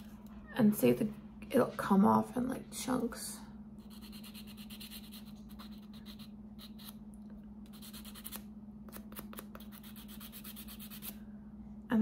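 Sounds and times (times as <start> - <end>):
nail file rasping on fingernail: 3.8 - 7.0, 7.6 - 11.2.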